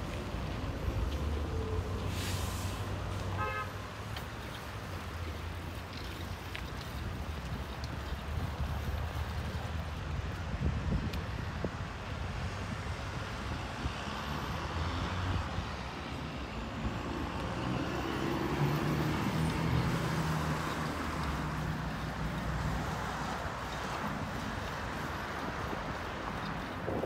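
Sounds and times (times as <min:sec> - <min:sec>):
road traffic: 0:00.0 - 0:27.0
wind buffeting microphone: 0:06.7 - 0:14.2, 0:18.0 - 0:27.0.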